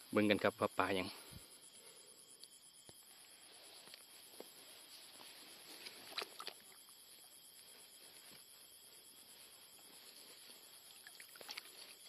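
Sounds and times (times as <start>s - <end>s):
small sharp splashes: 5.8s - 6.8s, 10.9s - 12.0s
hand splashing in muddy water: 5.9s - 6.8s, 10.8s - 12.0s.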